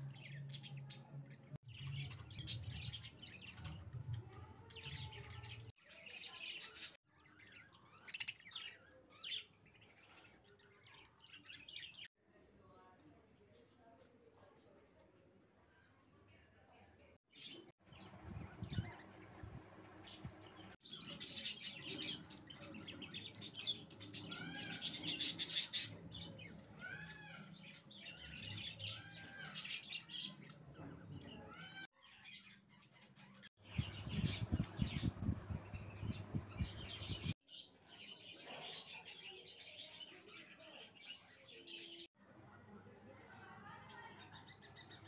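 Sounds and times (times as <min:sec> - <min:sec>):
bird chicks squeaky chirps: 0:20.0 - 0:37.4.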